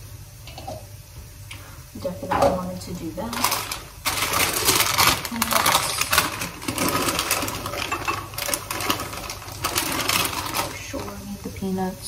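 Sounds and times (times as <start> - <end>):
plastic bag crinkling: 3.0 - 11.5.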